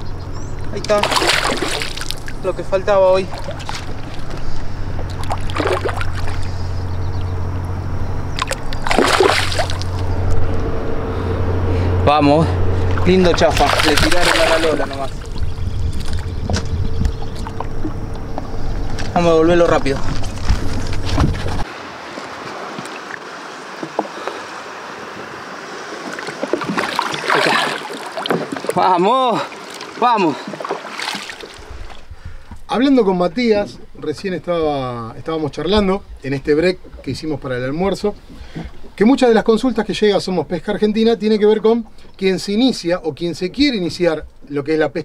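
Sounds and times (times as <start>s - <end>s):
steady low hum: 0.0s - 21.7s
fish splashing in water: 0.8s - 6.9s, 8.3s - 10.2s, 12.8s - 19.0s, 19.8s - 28.8s, 29.4s - 32.1s.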